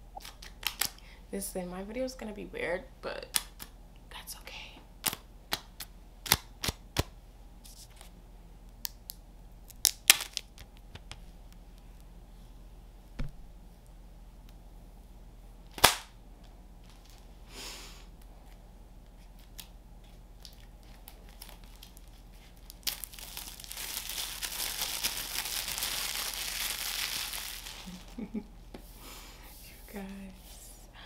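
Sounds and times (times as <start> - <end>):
packaging crinkling and tearing: 0.2 - 1.0, 9.7 - 11.1, 19.2 - 28.4
sharp snap: 15.8 - 16.2.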